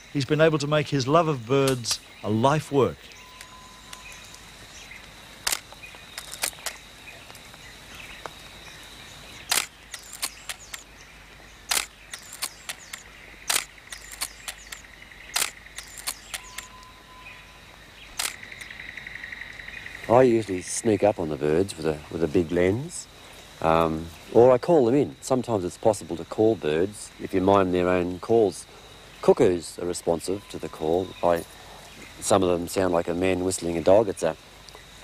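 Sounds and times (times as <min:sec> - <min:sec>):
high insect drone: 0:00.0 - 0:35.0
camera shutter clicks: 0:05.4 - 0:06.8, 0:09.5 - 0:10.8, 0:11.7 - 0:16.7, 0:18.2 - 0:18.7.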